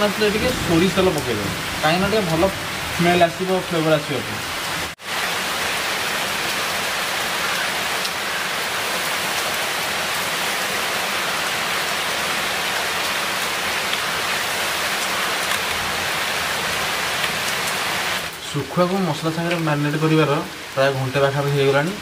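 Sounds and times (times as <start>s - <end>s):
heavy rain: 0.0s - 22.0s.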